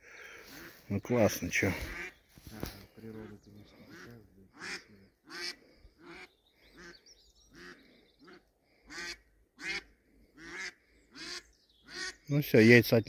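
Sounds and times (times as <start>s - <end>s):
duck quacking: 1.8s - 2.2s, 3.0s - 12.2s.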